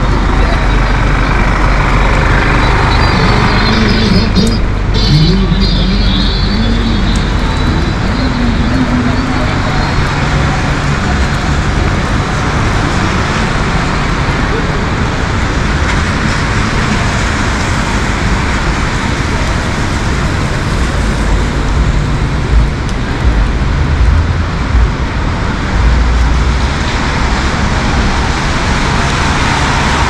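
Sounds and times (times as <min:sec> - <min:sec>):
low rumble: 0:00.0 - 0:12.9, 0:20.4 - 0:27.6
heavy rain: 0:00.0 - 0:30.0
street traffic: 0:00.0 - 0:30.0.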